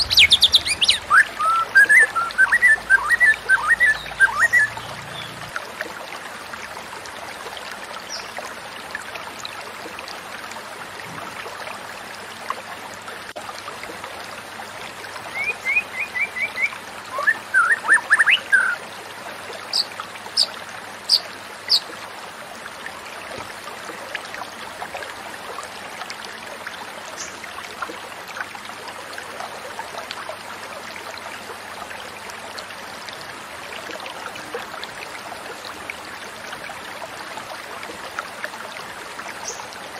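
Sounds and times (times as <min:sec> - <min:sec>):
quick bird notes: 0:00.0 - 0:05.4
stream babbling: 0:00.0 - 0:39.9.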